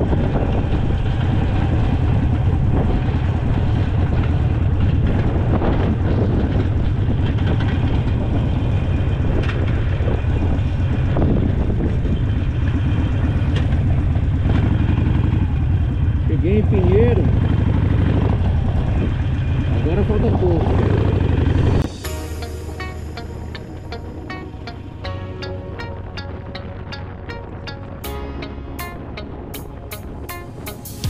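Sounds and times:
motorcycle engine rumbling: 0:00.0 - 0:31.0.

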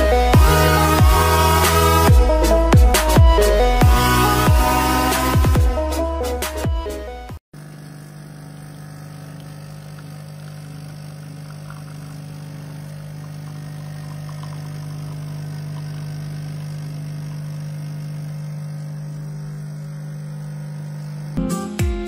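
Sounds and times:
espresso machine pump humming: 0:07.6 - 0:21.4
espresso pouring: 0:07.6 - 0:21.4.

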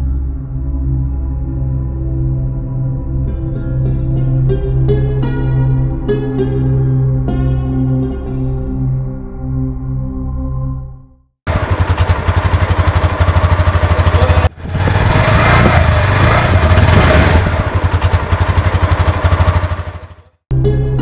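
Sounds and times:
motorcycle engine running and revving: 0:11.5 - 0:20.4.

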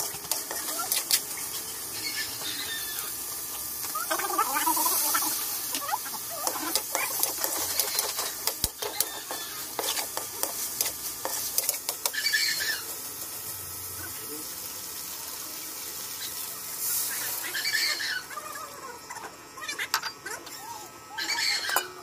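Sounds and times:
frying sizzle: 0:00.0 - 0:22.0
metal spatula scraping a wok: 0:06.4 - 0:13.0.

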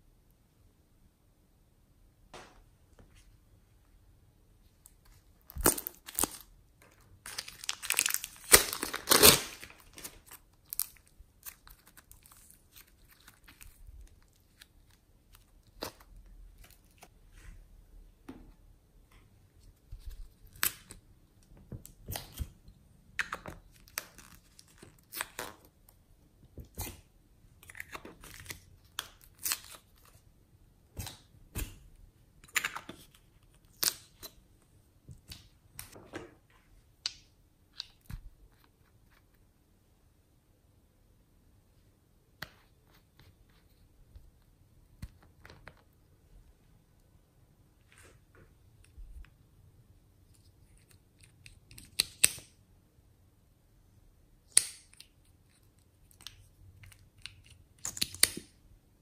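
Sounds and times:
plastic bag crinkling: 0:07.2 - 0:11.0.

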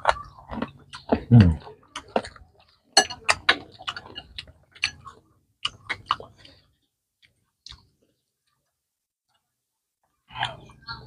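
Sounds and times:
people chewing crunchy food: 0:00.0 - 0:11.0
cutlery clicking against bowl: 0:03.0 - 0:05.0.

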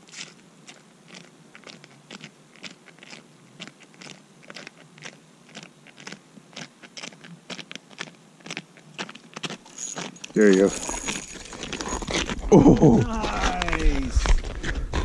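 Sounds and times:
footsteps crunching on snowy ice: 0:04.5 - 0:15.0.

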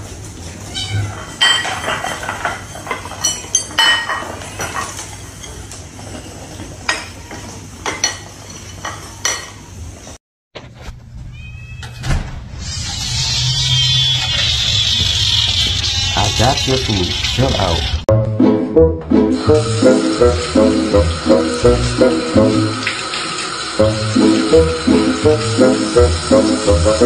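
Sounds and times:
ceramic bowls clinking on stone: 0:01.2 - 0:05.6, 0:07.8 - 0:09.6
steady high hiss: 0:19.4 - 0:27.0.

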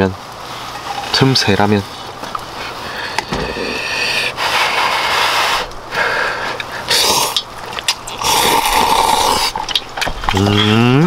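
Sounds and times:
person slurping noodles: 0:06.8 - 0:07.4, 0:08.1 - 0:10.7.

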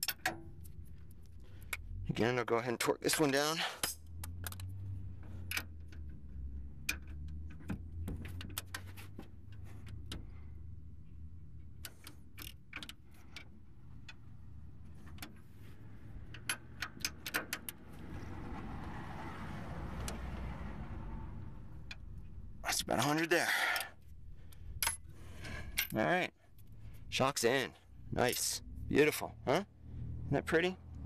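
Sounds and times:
metal wrenches clicking: 0:03.0 - 0:10.8, 0:16.1 - 0:18.0, 0:23.0 - 0:26.8.

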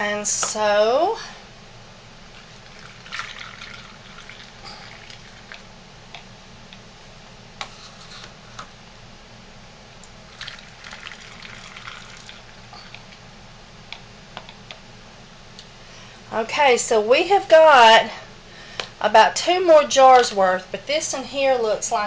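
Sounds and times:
low background hum: 0:00.0 - 0:22.0
thick lotion pouring: 0:02.5 - 0:05.7, 0:10.3 - 0:13.0.

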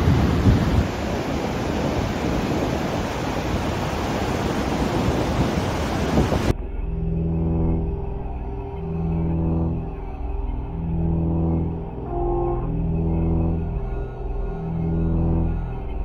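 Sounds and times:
ominous music with low tones: 0:06.5 - 0:16.0.

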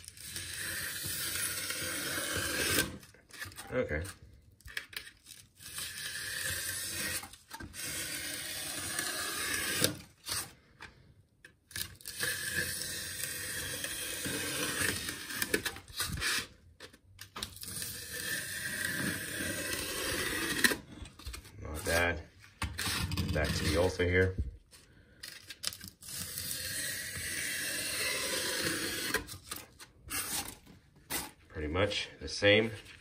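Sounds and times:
utility knife slicing foam: 0:00.0 - 0:03.8, 0:05.6 - 0:10.5, 0:26.0 - 0:31.4.

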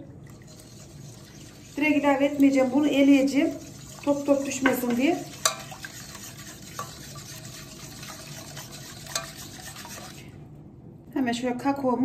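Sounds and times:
whisk swishing liquid: 0:00.3 - 0:10.4.

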